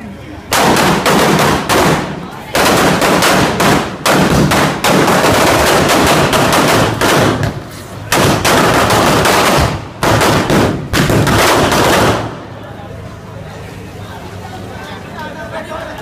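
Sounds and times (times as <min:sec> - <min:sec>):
firecrackers banging: 0:00.5 - 0:12.7.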